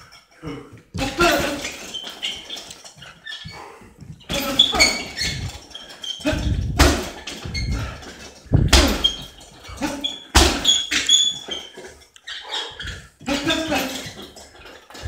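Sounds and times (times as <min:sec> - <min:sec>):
short squeaks: 0:00.9 - 0:15.0
heavy bag thuds: 0:06.2 - 0:10.8.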